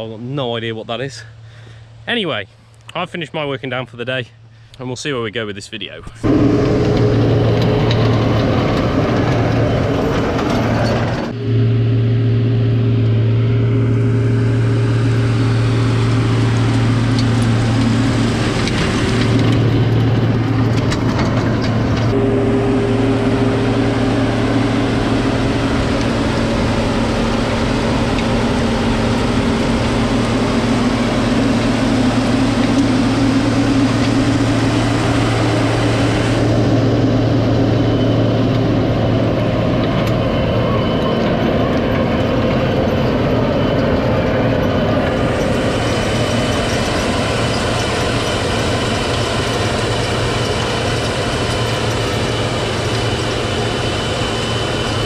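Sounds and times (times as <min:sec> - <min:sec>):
tractor engine running under load: 0:06.2 - 0:55.0.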